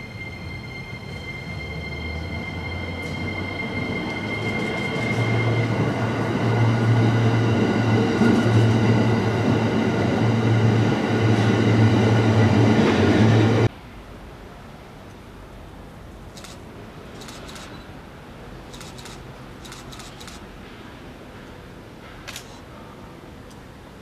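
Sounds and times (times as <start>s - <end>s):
electric train passing: 0.0s - 14.0s.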